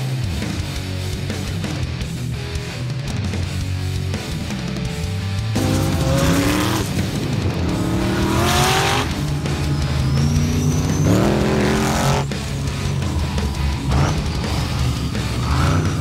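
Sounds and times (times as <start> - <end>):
music: 0.0 - 16.0
engines revving hard: 4.6 - 16.0.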